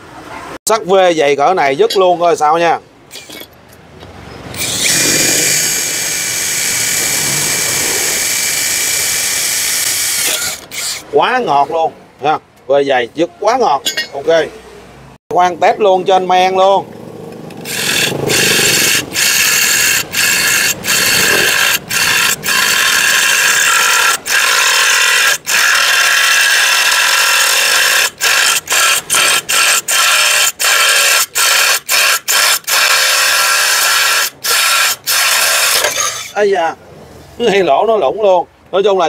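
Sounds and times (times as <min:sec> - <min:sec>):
drill boring through ceramic tile: 0:04.6 - 0:11.0, 0:17.6 - 0:36.4.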